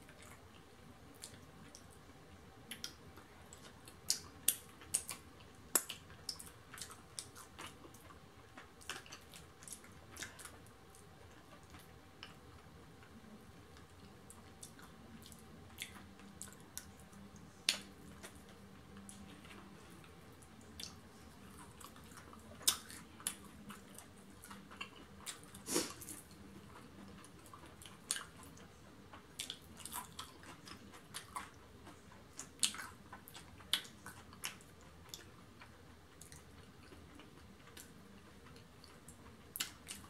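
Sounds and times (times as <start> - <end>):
person chewing: 0.1 - 1.9, 2.7 - 12.4, 13.0 - 40.0.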